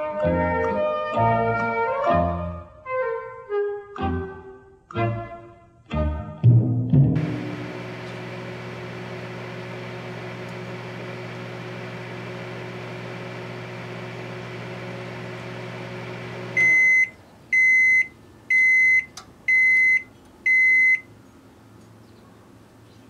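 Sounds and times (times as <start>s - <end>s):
microwave oven humming: 7.2s - 21.1s
loud beeps: 16.6s - 21.0s.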